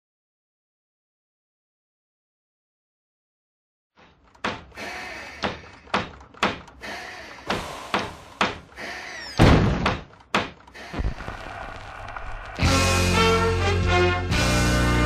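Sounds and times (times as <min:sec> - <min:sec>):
knocks and bangs: 0:04.4 - 0:06.8, 0:07.5 - 0:08.8, 0:09.4 - 0:12.8
heavy wooden door slamming: 0:09.4 - 0:10.1.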